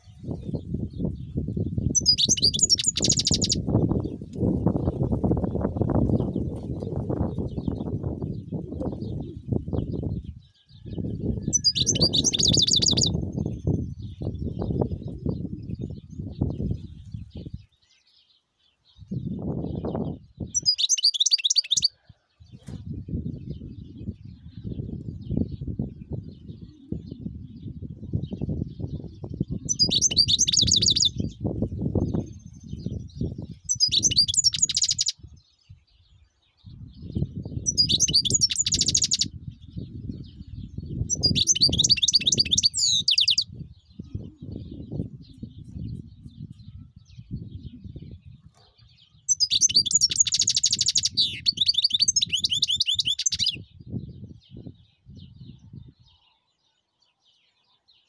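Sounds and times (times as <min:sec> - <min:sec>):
goldfinch twittering: 0:02.0 - 0:03.6, 0:11.5 - 0:13.1, 0:20.6 - 0:21.9, 0:29.7 - 0:31.2, 0:33.7 - 0:35.1, 0:37.7 - 0:39.3, 0:41.1 - 0:43.4, 0:49.3 - 0:53.6.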